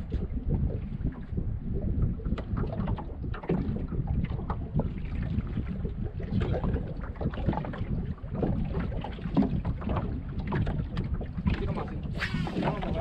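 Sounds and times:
wind buffeting microphone: 0:00.0 - 0:13.0
water slapping against boat hull: 0:02.0 - 0:13.0.

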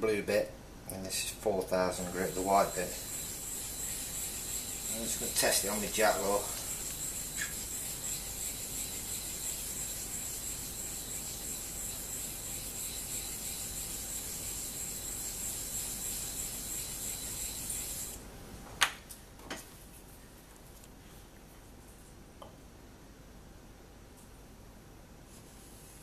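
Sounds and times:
stone scraping on whetstone: 0:02.0 - 0:18.2.

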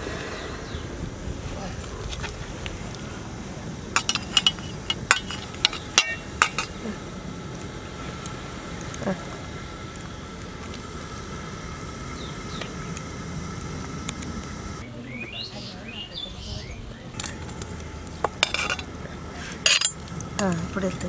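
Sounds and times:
outdoor background noise: 0:00.0 - 0:21.0
metal spoon clinking on cookware: 0:04.0 - 0:06.8, 0:18.4 - 0:18.9, 0:19.6 - 0:20.0
bird chirping: 0:12.0 - 0:12.9, 0:14.8 - 0:17.4.

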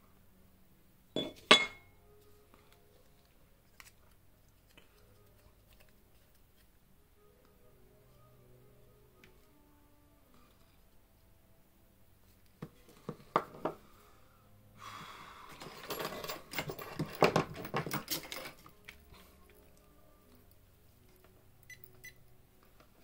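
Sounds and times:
handling clicks and knocks: 0:15.6 - 0:19.0.

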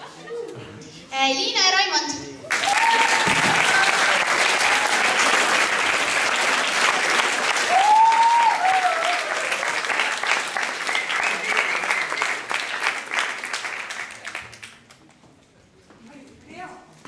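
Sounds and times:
audience applauding: 0:02.4 - 0:15.0.

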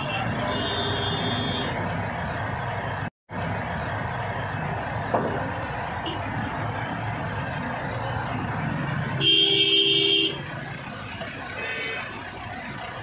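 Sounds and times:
vehicle horn: 0:00.0 - 0:01.7, 0:09.2 - 0:10.5, 0:11.6 - 0:12.1
paving machinery engine rumble: 0:01.8 - 0:09.2, 0:10.3 - 0:13.0.

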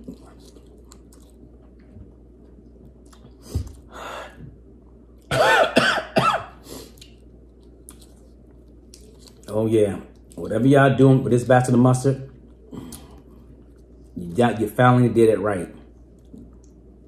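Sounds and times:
man clearing his throat: 0:05.3 - 0:06.6
man coughing hard: 0:05.3 - 0:06.6.

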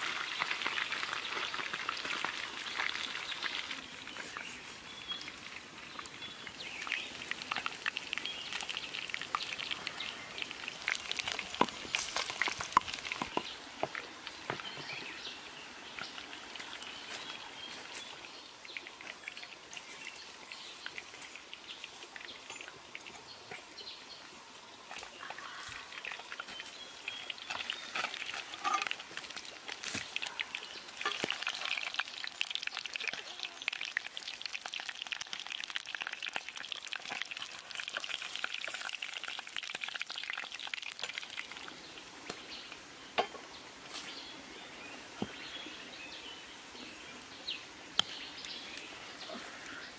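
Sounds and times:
fish sizzling in pot: 0:00.0 - 0:05.7, 0:06.5 - 0:14.1, 0:25.4 - 0:41.6
wood fire crackling: 0:05.2 - 0:14.6, 0:25.4 - 0:42.4.

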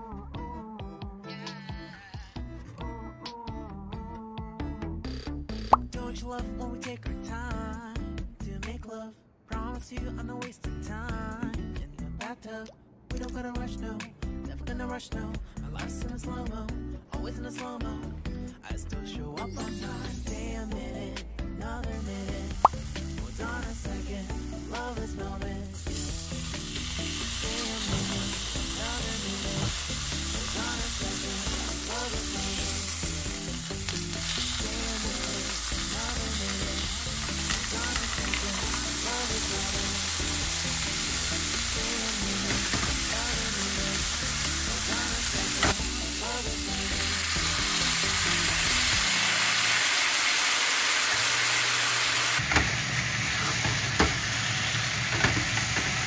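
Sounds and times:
steak sizzling in a pan: 0:22.0 - 0:56.0.

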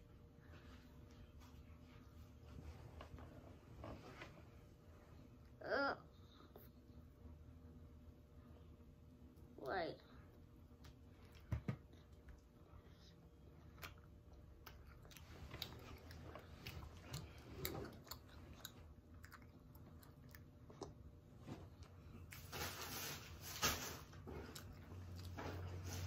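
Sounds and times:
child chewing food: 0:10.3 - 0:22.5, 0:24.0 - 0:26.0.

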